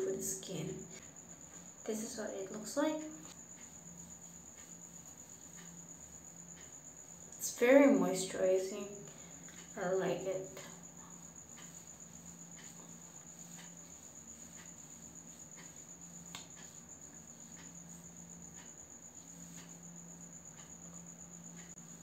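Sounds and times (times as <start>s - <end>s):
hands patting face: 12.6s - 16.9s.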